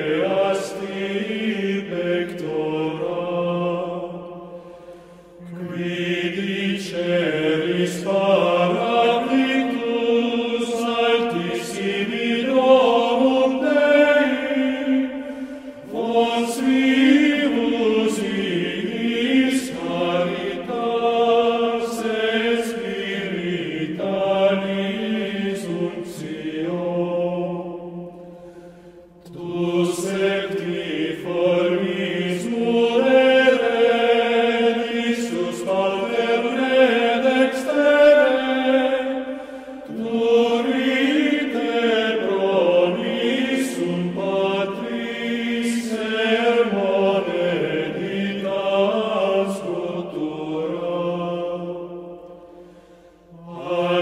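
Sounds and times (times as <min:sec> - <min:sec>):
choir chanting: 0:00.0 - 0:54.0.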